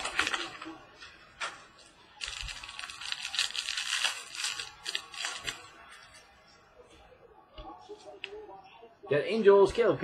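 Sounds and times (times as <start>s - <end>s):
foil pack being torn and crinkled: 2.2s - 5.7s.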